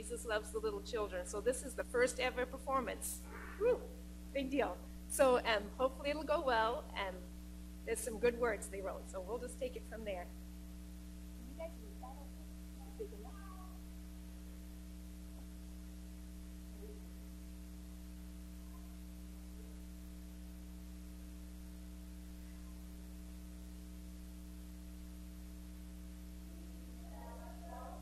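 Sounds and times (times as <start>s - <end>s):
constant hiss: 0.0s - 28.0s
electrical mains hum: 0.0s - 28.0s.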